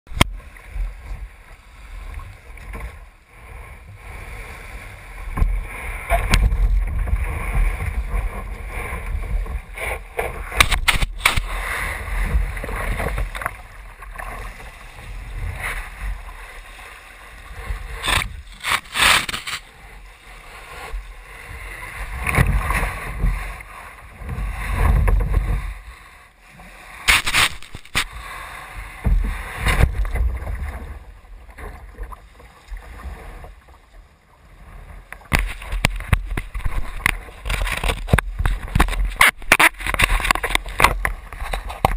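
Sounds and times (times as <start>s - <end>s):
small waves washing on sand: 14.2s - 24.0s, 26.7s - 29.8s.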